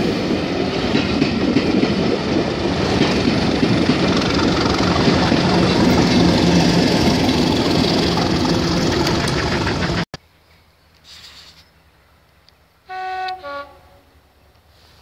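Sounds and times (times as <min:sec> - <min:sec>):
diesel locomotive passing: 0:00.0 - 0:10.1
rail noise: 0:00.0 - 0:15.0
two-note train horn: 0:12.9 - 0:14.2.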